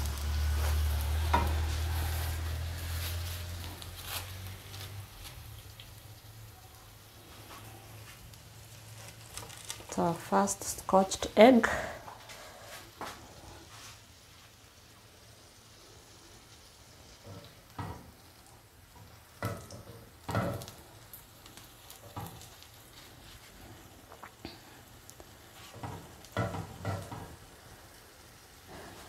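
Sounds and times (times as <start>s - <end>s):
food sizzling in hot oil: 0.0s - 29.0s
spatula turning food in pan: 0.0s - 29.0s.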